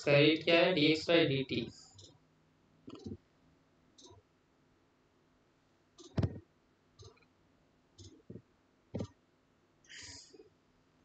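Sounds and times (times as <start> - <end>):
computer mouse clicks: 2.9 - 3.2, 4.0 - 4.2, 6.0 - 6.4, 7.0 - 7.3, 8.0 - 8.4.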